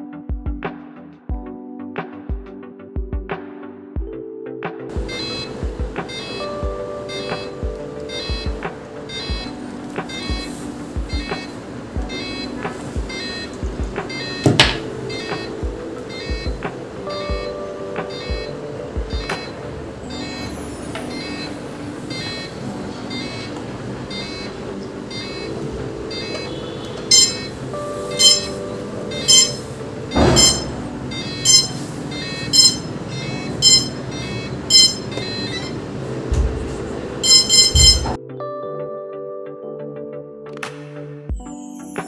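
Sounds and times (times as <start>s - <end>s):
synth chords: 4.9s - 38.2s
bright beeping note: 19.2s - 38.2s.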